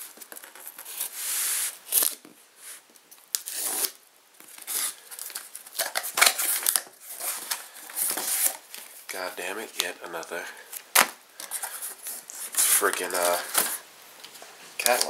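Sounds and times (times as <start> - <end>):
knife slitting packing tape: 3.3 - 4.0.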